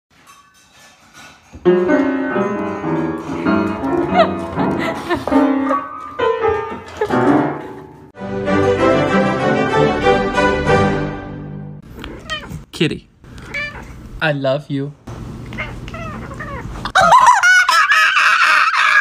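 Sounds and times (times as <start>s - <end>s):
background music: 1.7s - 11.8s.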